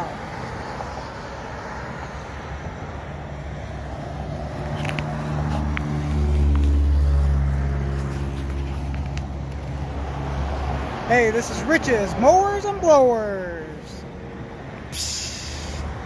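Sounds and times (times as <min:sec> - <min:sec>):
vehicle engine humming: 0:00.0 - 0:16.0.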